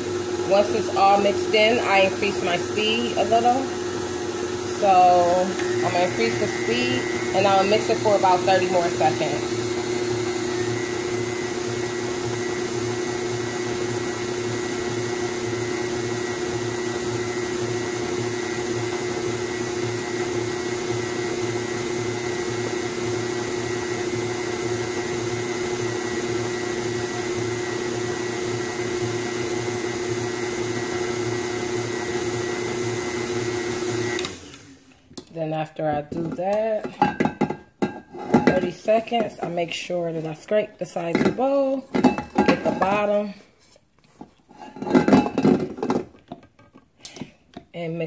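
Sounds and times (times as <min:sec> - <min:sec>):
stand mixer motor whine: 0:00.0 - 0:34.9.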